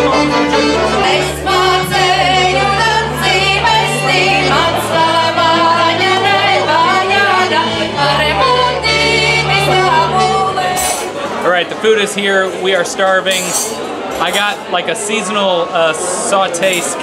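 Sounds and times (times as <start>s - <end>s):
held bass notes: 0.0s - 10.9s
instrumental accompaniment: 0.0s - 11.4s
woman singing folk song: 0.7s - 11.1s.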